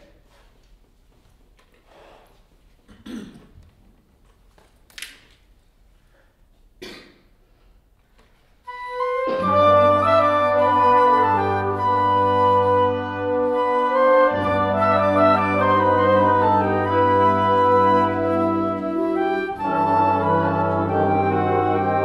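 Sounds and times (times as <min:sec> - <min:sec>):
instrumental ensemble playing chords: 0:08.7 - 0:22.0.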